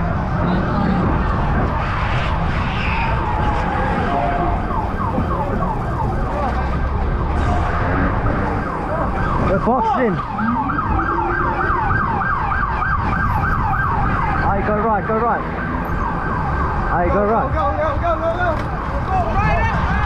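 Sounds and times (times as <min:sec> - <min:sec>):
low rumble of traffic: 0:00.0 - 0:20.0
siren whoop: 0:02.8 - 0:14.6, 0:15.5 - 0:17.1
police siren yelping: 0:03.0 - 0:17.6.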